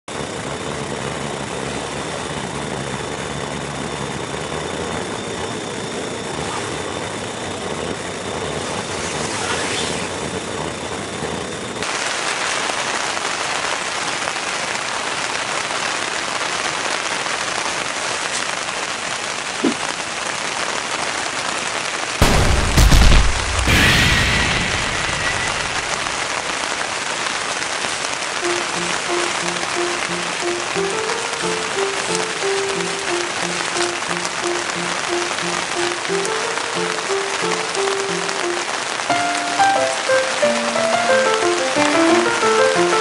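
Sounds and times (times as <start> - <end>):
heavy rain on tent fabric: 0.0 - 43.0
gas stove burning: 22.2 - 43.0.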